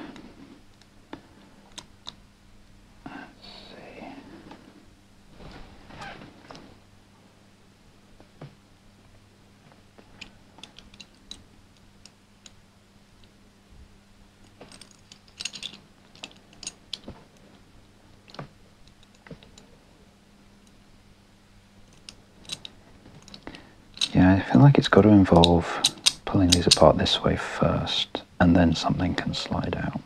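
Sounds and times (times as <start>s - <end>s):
metal puzzle pieces clicking: 10.2s - 11.4s, 14.7s - 17.1s, 21.9s - 24.2s, 25.3s - 26.9s.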